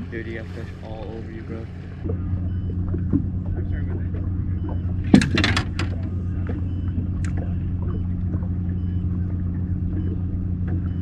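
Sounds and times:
boat motor humming: 0.0 - 11.0
knocks and rattles: 4.7 - 6.1.

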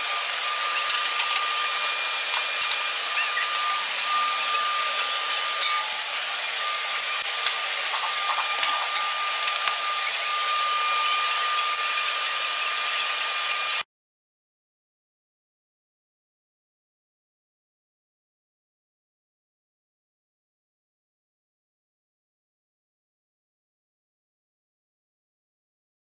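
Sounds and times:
thin high whine: 0.0 - 13.8.

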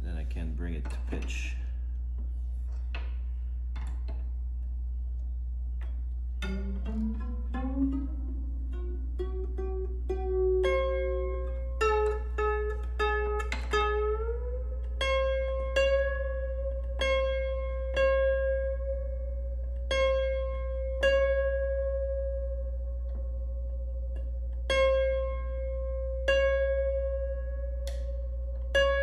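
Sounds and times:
piano string plucked by finger: 5.8 - 22.4, 23.0 - 29.0.

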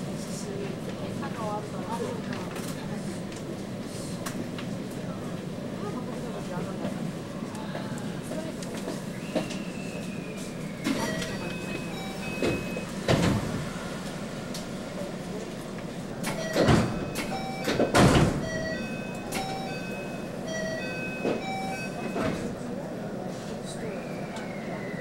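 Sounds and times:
low train carriage noise: 0.0 - 25.0
electronic chime melody: 18.4 - 22.2.

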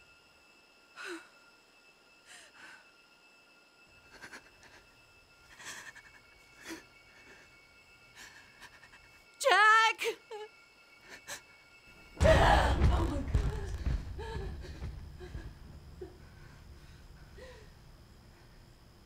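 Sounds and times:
woman gasping breaths: 13.4 - 17.8.

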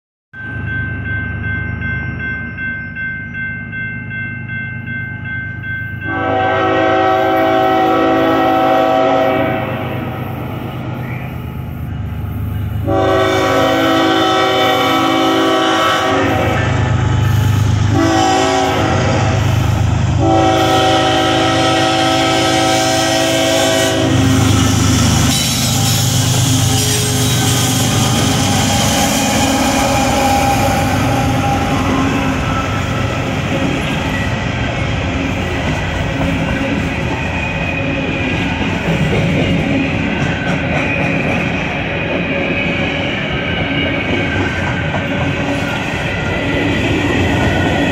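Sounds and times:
locomotive horn blasts: 6.1 - 10.1, 12.8 - 16.8, 17.9 - 19.6, 20.2 - 24.9
diesel locomotive engine running: 6.1 - 47.9
train wheels clattering on rails: 24.2 - 47.9.

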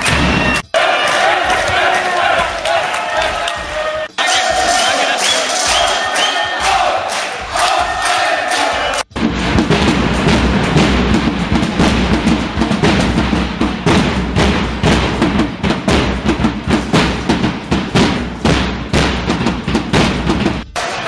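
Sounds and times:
bass drums beaten with mallets: 9.1 - 20.8.

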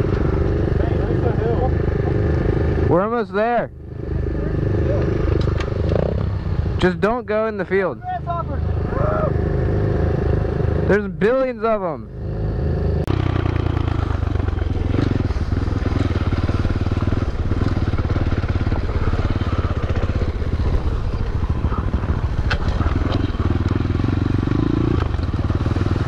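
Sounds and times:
motorbike engine running: 12.0 - 26.0.

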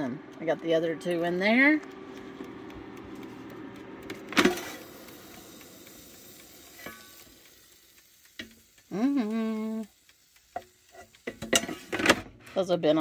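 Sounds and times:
air fryer fan humming: 0.0 - 13.0
faint sizzling: 0.0 - 13.0
person humming: 8.9 - 9.9.

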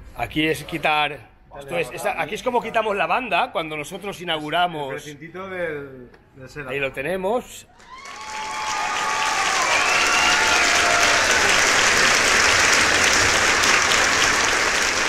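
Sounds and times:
audience clapping: 7.8 - 15.0.

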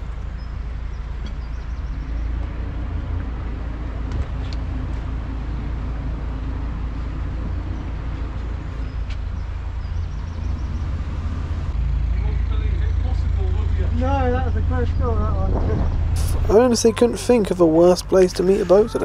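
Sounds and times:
diesel boat engine running: 0.0 - 19.0.

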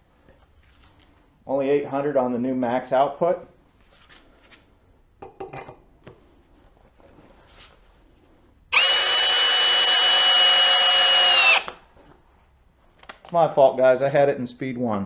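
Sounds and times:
drill motor whine: 8.7 - 11.8
knocks handling drill: 8.7 - 11.8.

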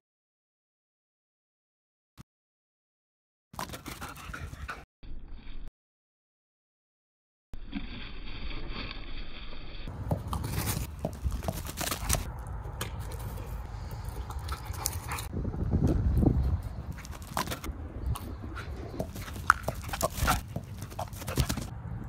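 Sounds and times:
dog running through grass: 10.3 - 12.3, 19.0 - 21.7.

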